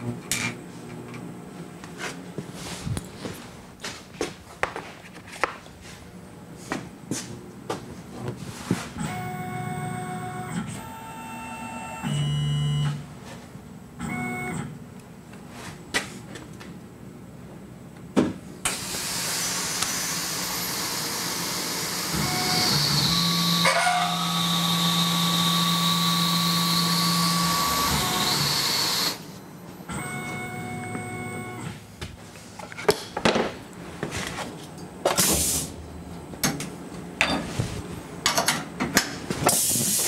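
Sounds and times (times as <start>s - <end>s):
mill spindle whine: 9.0s - 13.1s, 18.6s - 31.9s
hiss of air and coolant spray: 18.7s - 22.0s, 35.2s - 35.8s, 39.5s - 40.0s.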